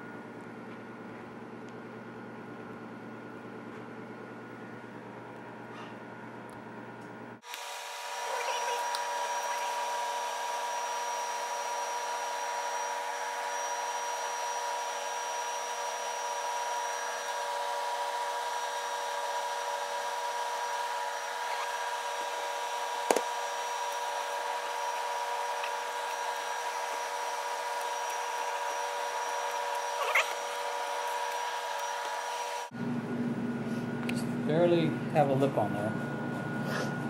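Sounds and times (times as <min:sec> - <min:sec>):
machine motor humming: 0:06.5 - 0:33.4.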